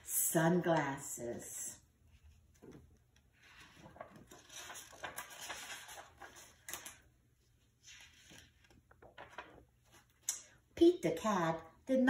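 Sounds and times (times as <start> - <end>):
paper pages rustling: 2.1 - 10.3.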